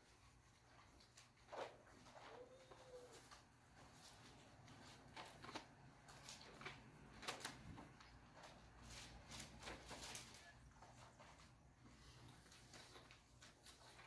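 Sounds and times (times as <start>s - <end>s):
thin pages being turned: 0.7s - 10.6s.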